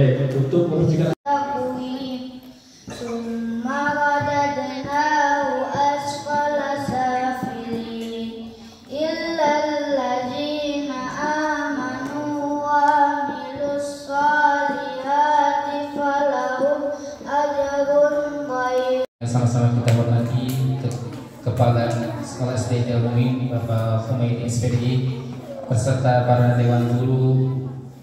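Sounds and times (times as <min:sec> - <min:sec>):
child singing: 0:01.3 - 0:19.1.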